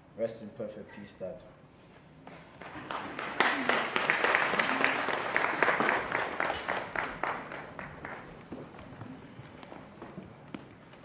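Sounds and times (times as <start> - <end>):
group of people clapping: 2.3 - 8.7.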